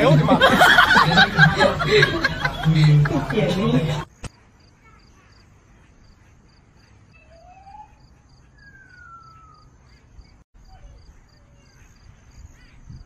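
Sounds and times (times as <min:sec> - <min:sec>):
crickets chirping: 0:04.0 - 0:13.0
faint gliding calls: 0:04.9 - 0:12.8.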